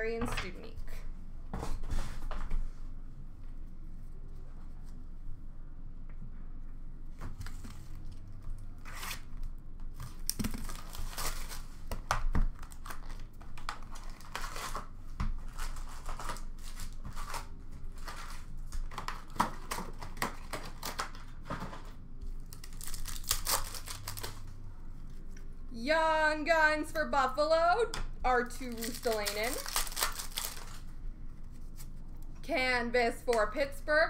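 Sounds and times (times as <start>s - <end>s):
card pack wrappers tearing: 10.2s - 11.8s, 12.6s - 14.9s, 15.5s - 21.4s, 22.4s - 24.5s, 28.5s - 30.9s.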